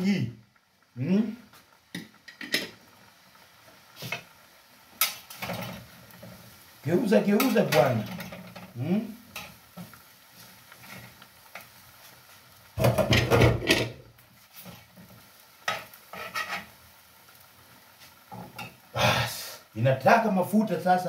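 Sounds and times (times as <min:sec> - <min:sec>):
faint sizzling: 0:00.0 - 0:21.0
metal spatula scraping frying pan: 0:05.0 - 0:06.4, 0:10.7 - 0:11.2, 0:15.6 - 0:16.8.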